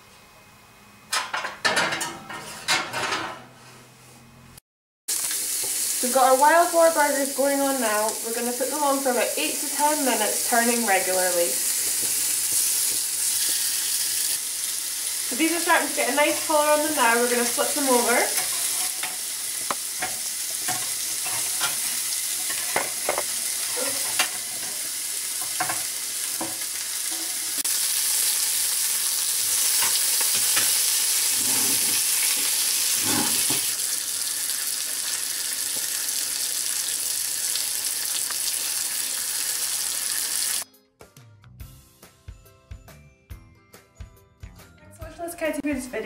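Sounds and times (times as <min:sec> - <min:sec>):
burgers sizzling in a pan: 0:05.1 - 0:40.6
tongs and fork scraping pan: 0:17.8 - 0:19.2, 0:20.0 - 0:24.8, 0:33.0 - 0:33.7.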